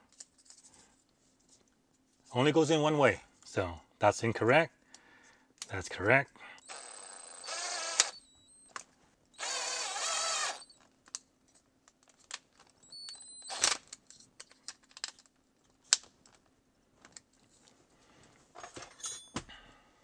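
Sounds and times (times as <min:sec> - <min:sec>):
cordless drill whirring: 0:06.6 - 0:08.7, 0:09.4 - 0:10.8, 0:13.0 - 0:13.8
clicks and taps of small parts: 0:13.8 - 0:17.4.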